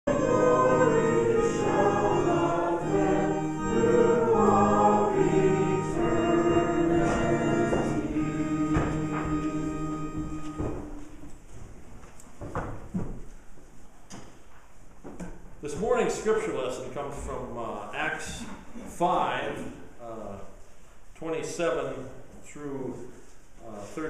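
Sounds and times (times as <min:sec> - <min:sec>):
group singing a hymn: 0:00.0 - 0:11.1
sustained chords: 0:00.1 - 0:11.0.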